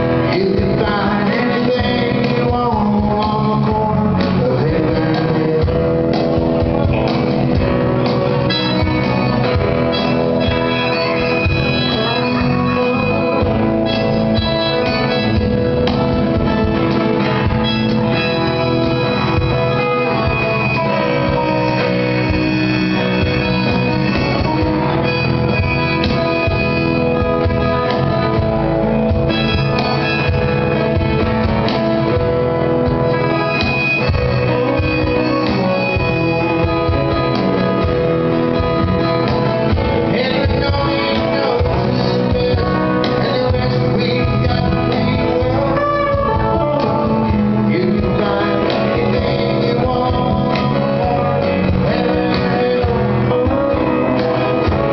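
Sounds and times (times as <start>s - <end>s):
electric bass: 0.0s - 54.9s
man singing: 0.0s - 54.9s.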